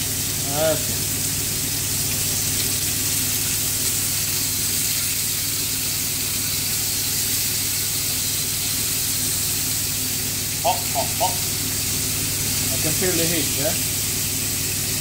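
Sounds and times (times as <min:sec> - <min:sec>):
meat sizzling in hot oil: 0:00.0 - 0:15.0
extractor fan humming: 0:05.6 - 0:15.0.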